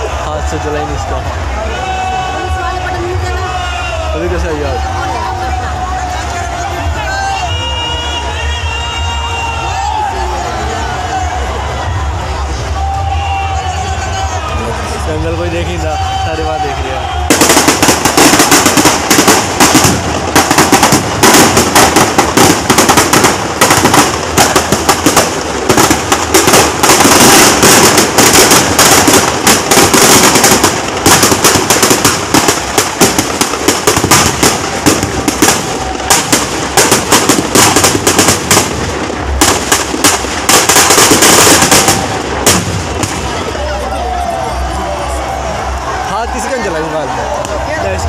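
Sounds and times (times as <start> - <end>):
firecrackers banging and crackling: 14.4 - 48.0.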